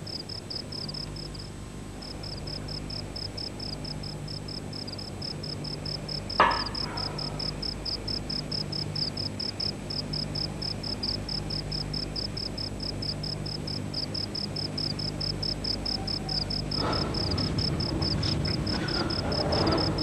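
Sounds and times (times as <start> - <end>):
cricket chirping: 0.0 - 20.0
low steady hum: 0.0 - 20.0.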